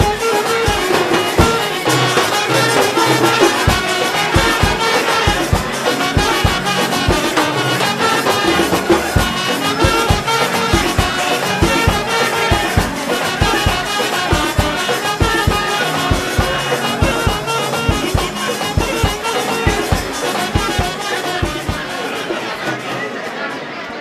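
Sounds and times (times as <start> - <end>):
steady drum beat: 0.0 - 22.6
brass melody: 0.0 - 23.3.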